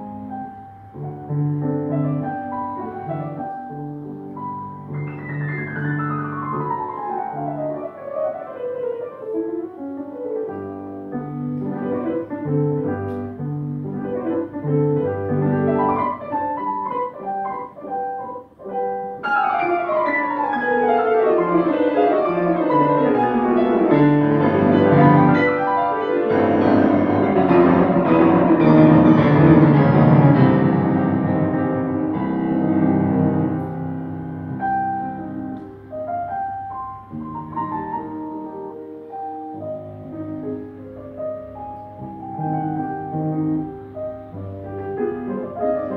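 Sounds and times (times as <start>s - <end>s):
solo piano: 0.0s - 45.9s.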